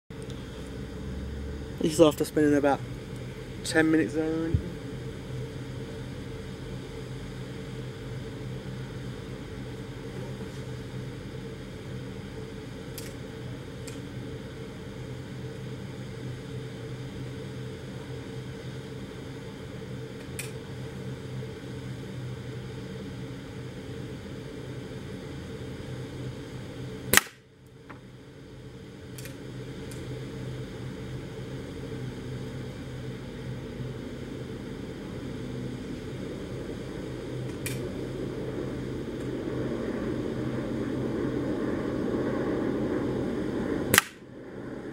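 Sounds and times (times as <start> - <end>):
low background hum: 0.1 - 44.9
air rifle shot: 27.1 - 27.4, 43.9 - 44.2.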